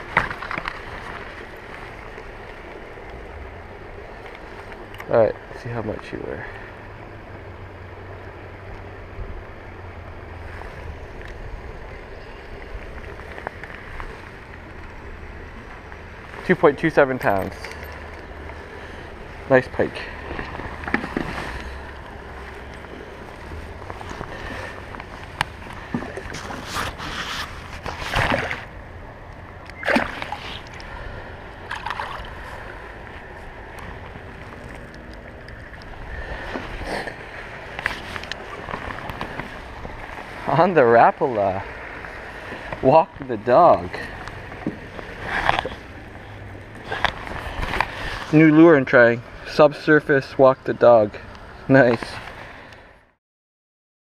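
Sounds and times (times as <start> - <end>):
faint clicks of fishing tools: 17.4 - 18.8
fish splashing in water: 29.7 - 33.0.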